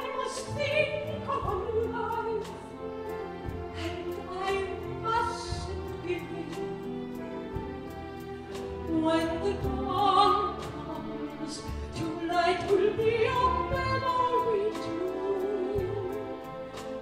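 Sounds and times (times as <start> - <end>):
soprano singing with vibrato: 0.0 - 7.7, 8.5 - 17.0
orchestra playing: 0.0 - 17.0.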